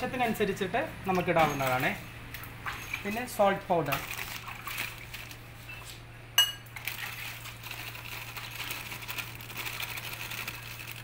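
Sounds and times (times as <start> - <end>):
spoon clinking against bowl: 6.4 - 6.7
salt pouring from plastic packet: 6.8 - 11.0.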